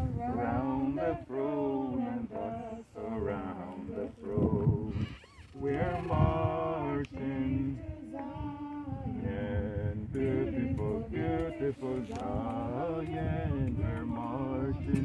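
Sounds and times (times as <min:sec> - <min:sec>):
people singing a hymn unaccompanied: 0:00.0 - 0:15.0.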